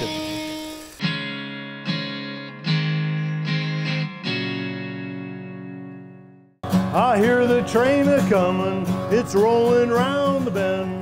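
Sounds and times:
electric guitar playing: 0.0 - 11.0.

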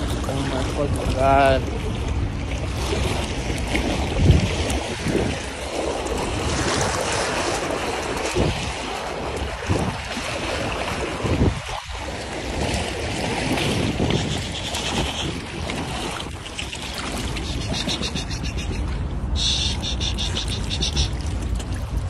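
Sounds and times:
water sloshing from wading: 0.0 - 22.0
wind rumbling on microphone: 0.0 - 22.0.

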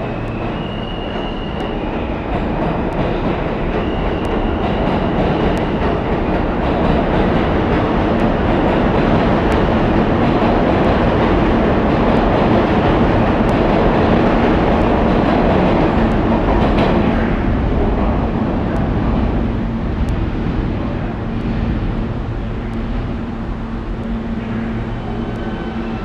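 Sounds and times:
subway train wheels rumbling: 0.0 - 26.0.

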